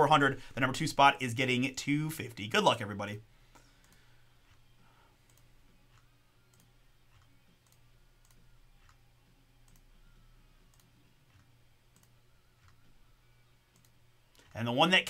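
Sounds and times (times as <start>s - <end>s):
low steady hum: 0.0s - 15.0s
computer mouse clicks: 3.5s - 9.0s, 9.6s - 9.9s, 10.6s - 12.9s, 13.7s - 14.6s.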